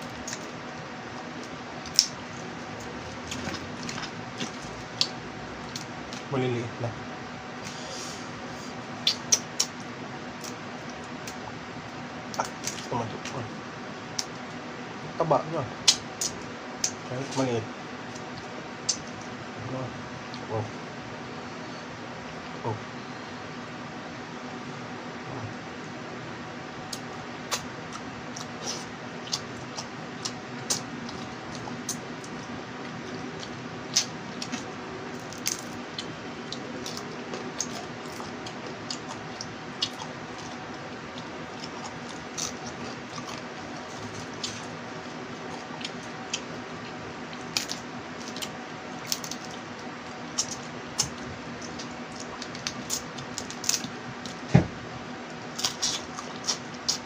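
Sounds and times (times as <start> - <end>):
wet squishing and chewing: 0.0 - 6.3, 8.7 - 11.4, 26.9 - 54.5, 55.2 - 57.0
crab shells cracking: 29.3 - 46.6, 47.4 - 49.6.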